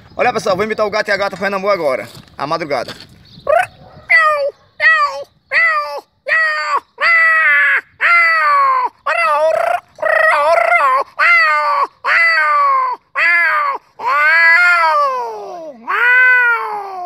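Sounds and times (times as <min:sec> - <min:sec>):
man imitating cats yowling: 0:03.5 - 0:17.0.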